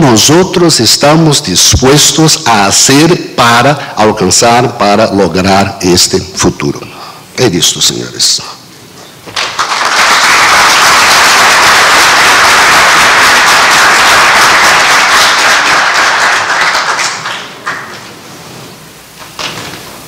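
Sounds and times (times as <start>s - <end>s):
audience applauding: 9.3s - 18.0s.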